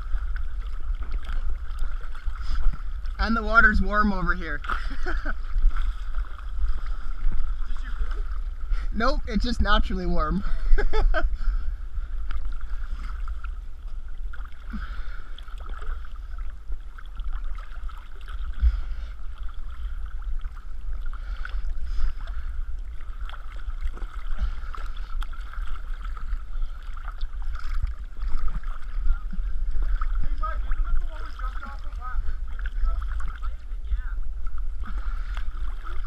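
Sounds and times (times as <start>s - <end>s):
small splashes: 0.0s - 8.9s, 12.2s - 33.7s
water lapping and sloshing: 0.0s - 36.0s.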